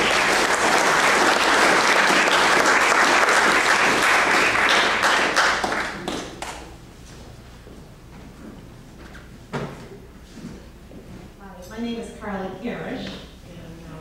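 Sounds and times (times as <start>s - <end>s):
audience applauding: 0.0s - 6.6s.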